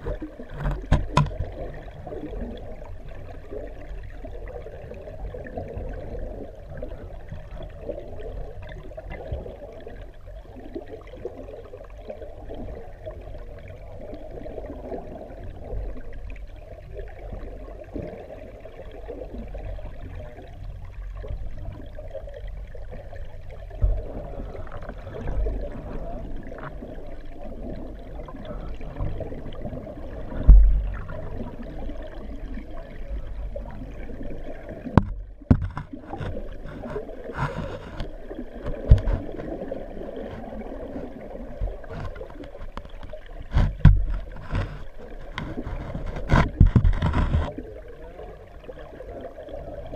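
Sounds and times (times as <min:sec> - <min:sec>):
underwater rush of water and bubbles: 0:00.0 - 0:49.9
dull knocks: 0:35.0 - 0:36.4.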